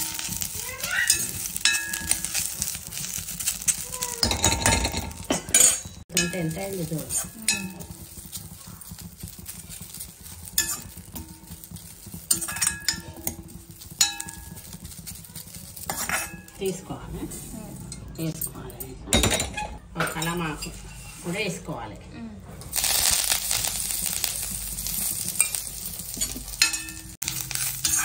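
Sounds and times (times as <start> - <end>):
metal spatula scraping steel pan: 9.0 - 18.4, 19.6 - 21.7, 24.9 - 28.0.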